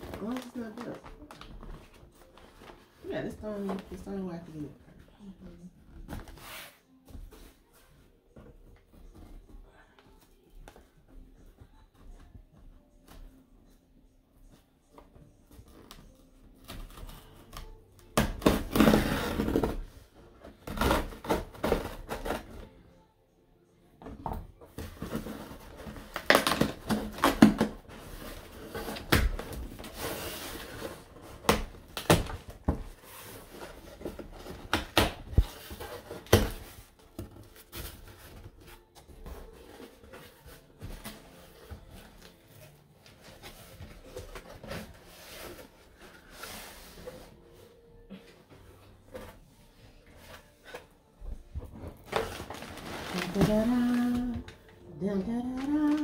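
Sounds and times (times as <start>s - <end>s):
cardboard flaps rustling and scraping: 51.6s - 54.5s.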